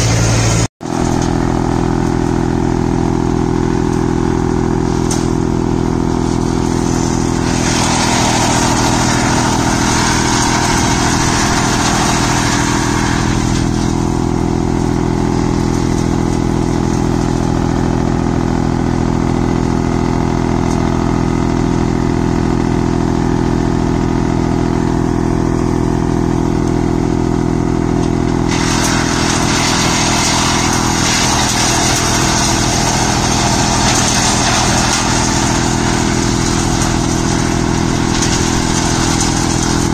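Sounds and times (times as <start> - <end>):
wood chipper humming: 0.0 - 39.9
branches being shredded: 3.7 - 17.9, 28.0 - 39.9.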